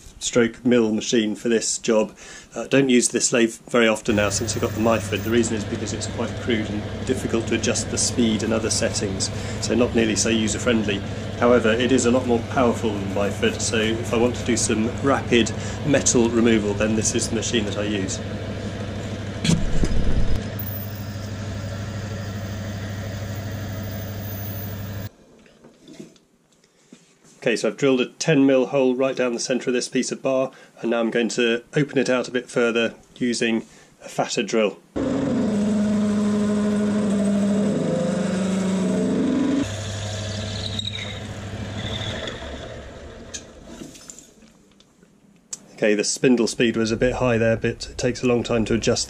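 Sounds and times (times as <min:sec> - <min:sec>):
drill boring into spinning bar: 0:04.1 - 0:18.3, 0:20.3 - 0:25.1, 0:35.0 - 0:43.8
lathe humming: 0:04.1 - 0:19.5, 0:20.2 - 0:25.1, 0:35.0 - 0:43.8.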